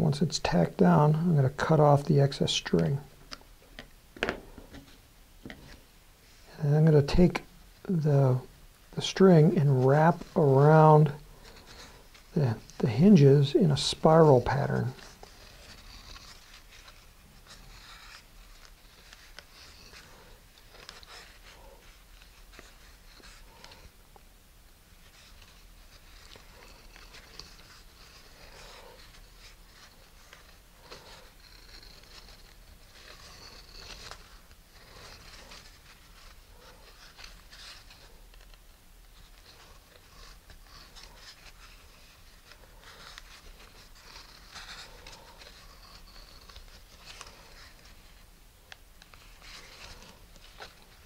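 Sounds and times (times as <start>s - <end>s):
string winding rustle: 0.0s - 51.0s.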